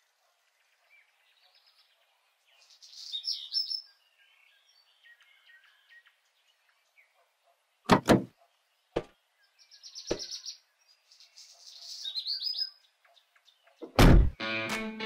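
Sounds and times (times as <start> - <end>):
small birds chirping: 0.0 - 14.0
boots knocking on metal step: 7.9 - 8.3
heavy thumps of truck door: 7.9 - 8.3, 14.0 - 14.4.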